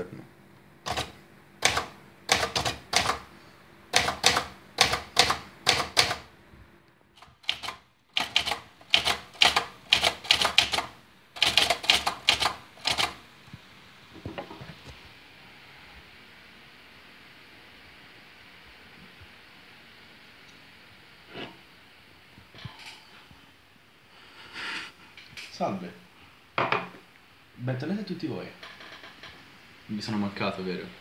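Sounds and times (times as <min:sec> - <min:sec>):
typewriter keystrokes: 0:00.9 - 0:03.3, 0:03.9 - 0:06.3, 0:07.2 - 0:13.2.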